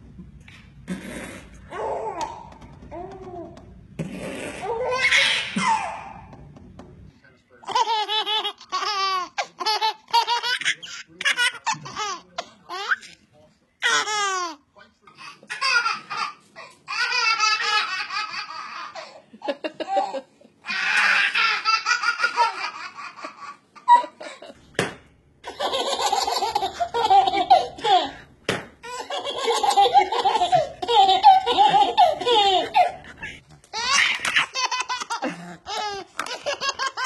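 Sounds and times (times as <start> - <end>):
babies laughing: 4.6 - 6.2, 7.6 - 13.1, 15.2 - 24.6, 25.4 - 37.0.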